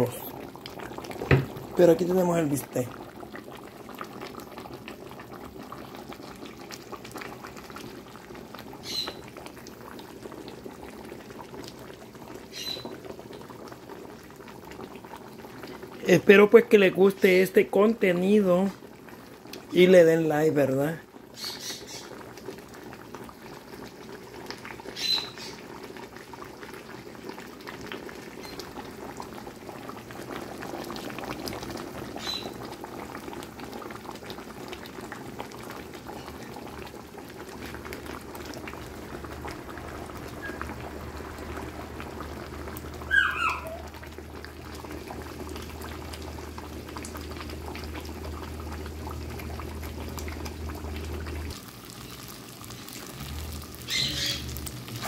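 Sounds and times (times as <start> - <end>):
sauce bubbling in frying pan: 0.0 - 55.0.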